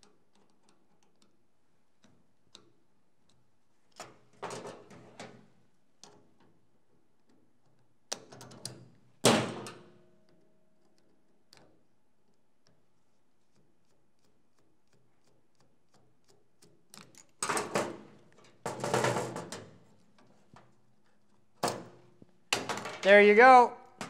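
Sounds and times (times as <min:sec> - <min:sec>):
clicks and rattles of parts: 0:14.8 - 0:20.8.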